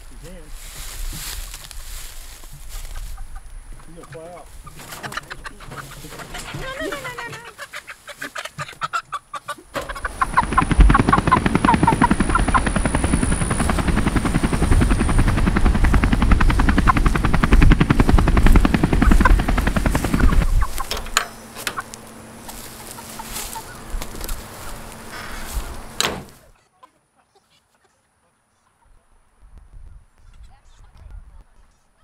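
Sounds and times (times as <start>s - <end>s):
chickens clucking: 1.8s - 15.7s, 16.4s - 28.0s
rapid wing fluttering: 4.6s - 7.4s, 9.8s - 26.5s.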